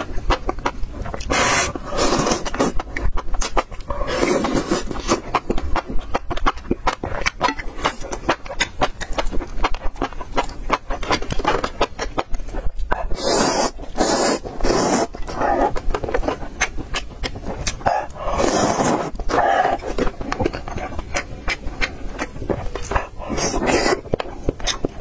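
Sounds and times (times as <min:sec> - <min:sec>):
wet chewing and lip-smacking: 0:00.0 - 0:25.0
slurping noodles: 0:01.1 - 0:05.4, 0:12.5 - 0:25.0.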